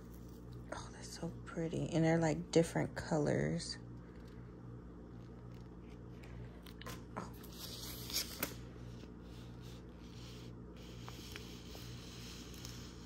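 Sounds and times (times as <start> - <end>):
steady low hum: 0.0 - 13.0
sticker packaging crinkling: 5.1 - 9.0.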